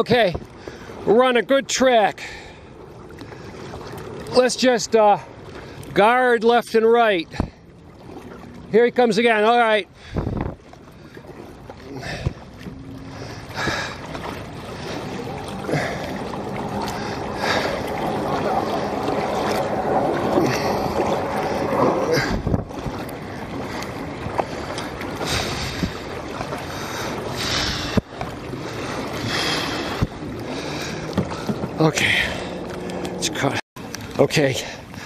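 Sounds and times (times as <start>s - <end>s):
paddle splashing in water: 0.0s - 35.0s
water washing along hull: 0.0s - 35.0s
wind on microphone: 10.0s - 26.4s.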